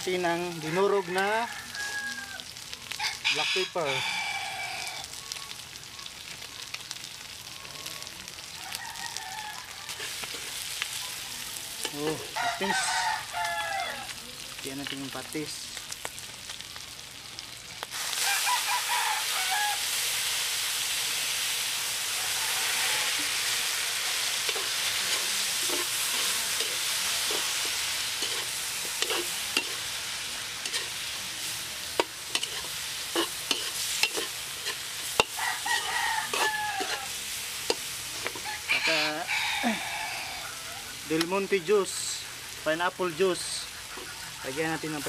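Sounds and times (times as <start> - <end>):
loud sizzle in a hot wok: 0.0 - 45.0
rooster crowing: 0.4 - 5.3, 7.6 - 14.2, 18.2 - 20.0, 22.0 - 29.8, 33.2 - 41.1
metal spatula scraping a wok: 9.9 - 10.8, 23.1 - 31.1, 31.9 - 38.8, 43.6 - 44.4.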